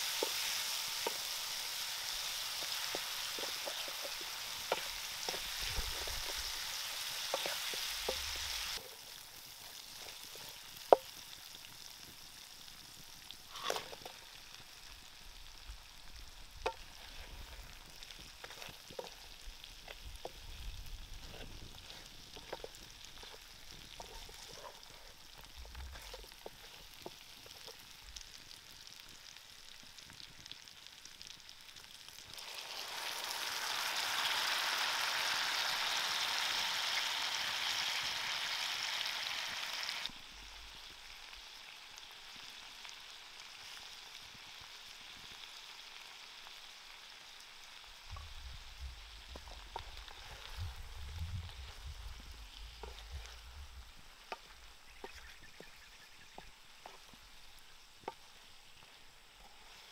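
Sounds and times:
loud steady hiss: 0.0s - 55.1s
fish sizzling in oil: 0.0s - 59.9s
wooden spatula taps and scrapes: 2.5s - 9.0s, 18.2s - 20.4s, 21.2s - 27.8s, 52.8s - 53.4s, 54.2s - 57.2s, 58.0s - 58.2s.

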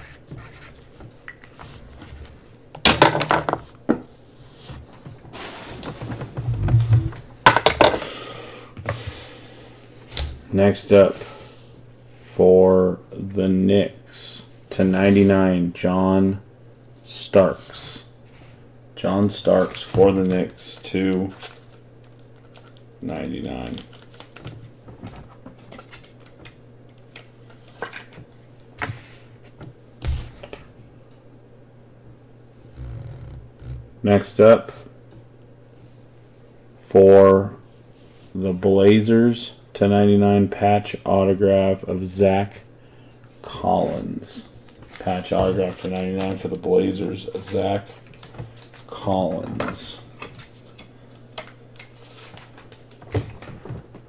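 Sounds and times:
low steady hum: 0.0s - 54.0s
objects clattering on a tabletop: 2.8s - 4.1s, 7.0s - 8.0s
card rustling: 43.8s - 53.0s.

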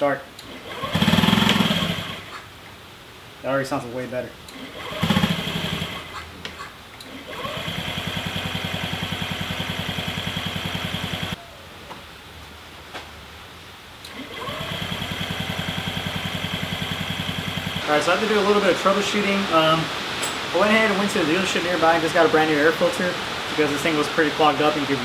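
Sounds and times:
scooter electric starter cranking: 0.4s - 2.3s, 4.5s - 6.2s, 7.0s - 11.4s, 14.1s - 17.8s.

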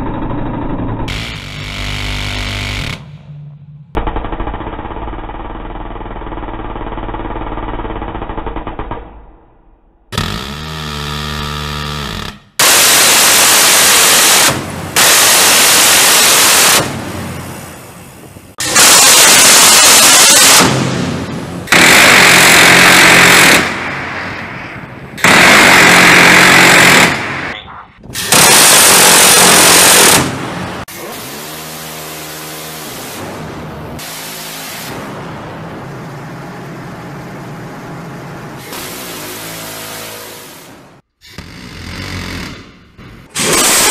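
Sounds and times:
pitched whine: 0.0s - 7.0s
gatling cannon firing burst: 12.6s - 17.6s, 18.6s - 27.6s, 28.2s - 30.8s, 43.4s - 43.9s
gatling gun firing bursts: 21.7s - 23.8s, 25.2s - 27.5s, 28.3s - 30.4s.

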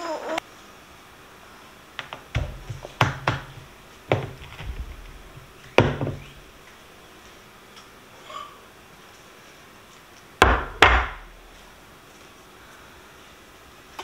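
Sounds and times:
irregular knocks and thumps: 2.0s - 6.5s.

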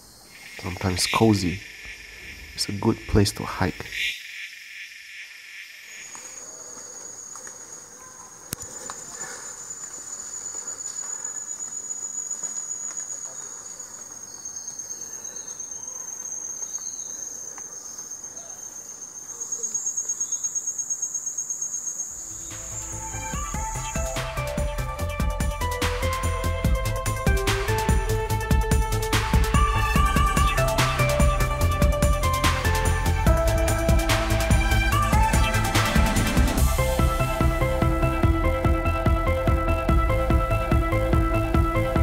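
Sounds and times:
high-pitched insect trill: 0.0s - 38.0s
rapid insect pulse: 0.0s - 38.3s.

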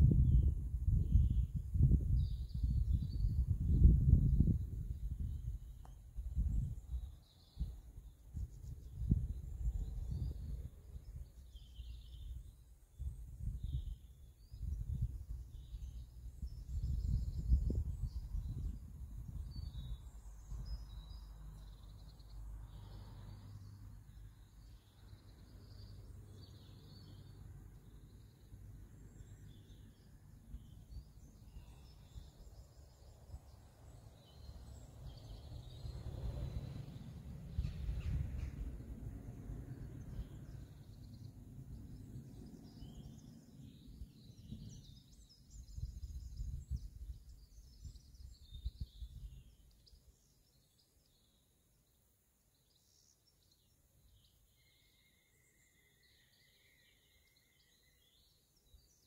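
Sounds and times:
wind buffeting microphone: 0.0s - 21.2s, 34.2s - 49.6s
songbirds chirping: 0.0s - 59.0s.

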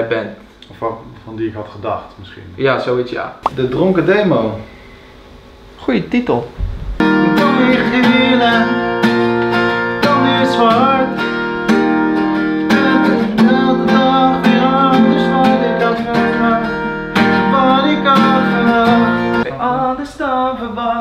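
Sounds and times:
acoustic guitar strumming chords: 6.6s - 20.0s
person singing: 7.0s - 11.3s, 12.6s - 21.0s.

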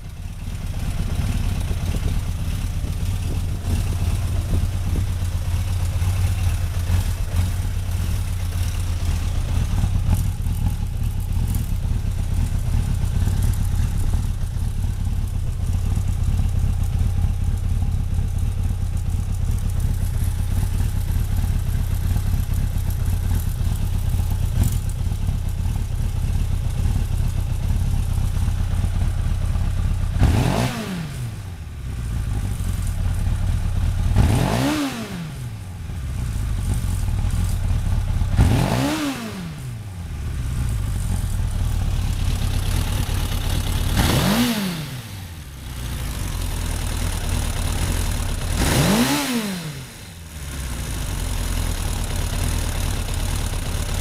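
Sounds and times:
motorcycle engine idling: 0.0s - 54.0s
engine revving: 30.2s - 31.5s, 34.1s - 35.6s, 38.3s - 39.9s, 42.2s - 54.0s.

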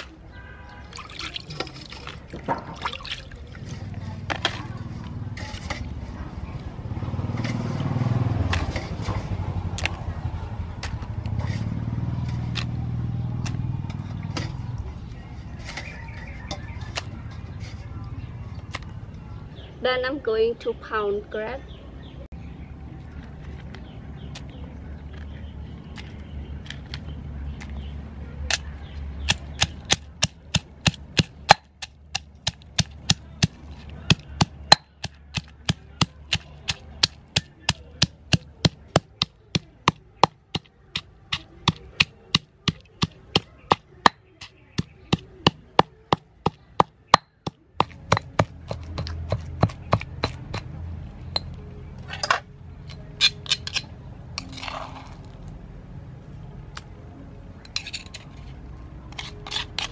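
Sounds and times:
stone pestle pounding in mortar: 29.2s - 50.7s
spoon scraping mortar: 47.5s - 50.7s, 53.0s - 55.4s, 57.6s - 59.9s.

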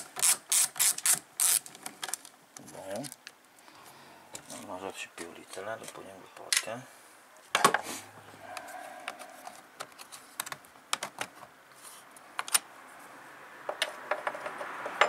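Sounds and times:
hands handling plastic housing: 8.5s - 12.6s.

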